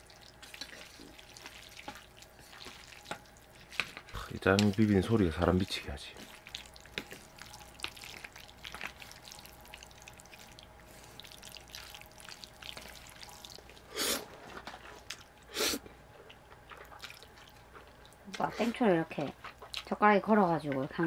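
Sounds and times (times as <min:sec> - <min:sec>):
chopsticks mixing sticky noodles: 0:00.0 - 0:15.3.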